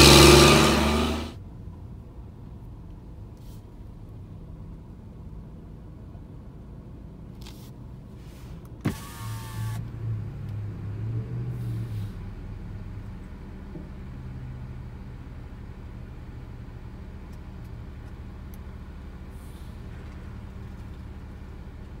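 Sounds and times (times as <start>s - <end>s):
sharp rising whine: 0.0s - 1.4s
vehicle engines idling: 0.0s - 1.8s, 8.2s - 22.0s.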